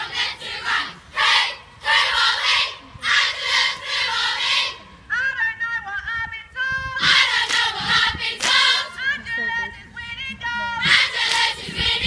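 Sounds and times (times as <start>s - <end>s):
girls chanting a cheer: 0.0s - 4.8s, 7.0s - 9.0s, 10.8s - 12.0s.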